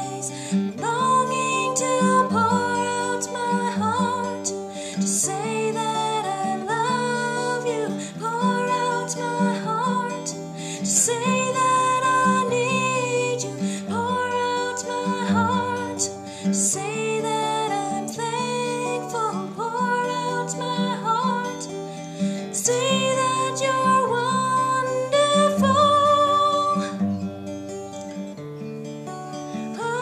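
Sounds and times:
woman singing: 0:00.0 - 0:27.3, 0:29.5 - 0:30.0
finger-picked acoustic guitar: 0:00.0 - 0:30.0.

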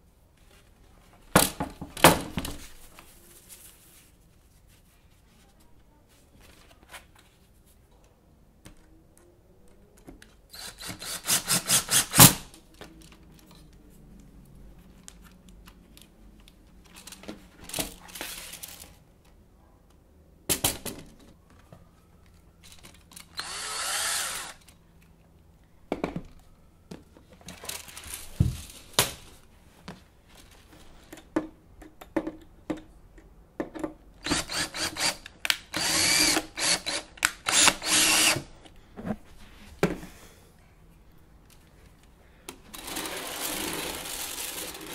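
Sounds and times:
cordless drill driving screws: 0:23.3 - 0:24.7, 0:34.2 - 0:38.5.

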